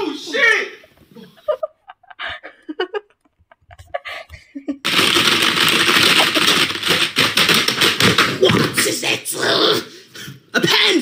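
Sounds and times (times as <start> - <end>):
rapid keyboard typing: 4.8 - 8.9.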